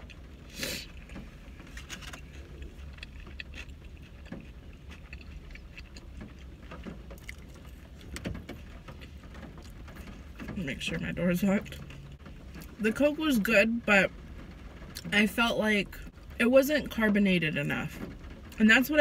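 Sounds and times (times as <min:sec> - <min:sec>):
person chewing food: 0:00.0 - 0:10.4
car cabin hum: 0:00.0 - 0:19.0.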